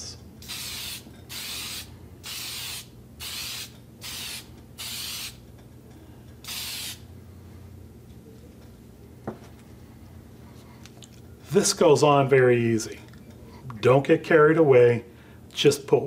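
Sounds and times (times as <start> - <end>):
aerosol can spraying hisses: 0.4 - 5.4, 6.5 - 7.0.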